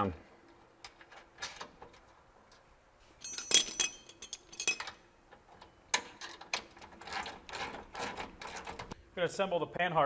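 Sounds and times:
steel hand tools clinking: 3.2s - 5.0s.

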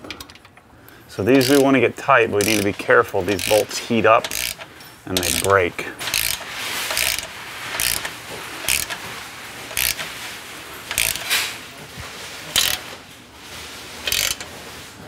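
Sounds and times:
ratchet wrench clicking: 1.3s - 1.8s, 2.4s - 9.0s, 9.7s - 10.1s, 10.9s - 11.4s, 12.6s - 12.8s, 14.0s - 14.5s.

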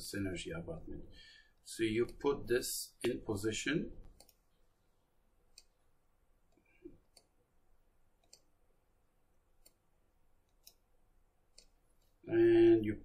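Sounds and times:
faint computer mouse clicks: 8.2s - 8.5s, 10.5s - 10.8s.

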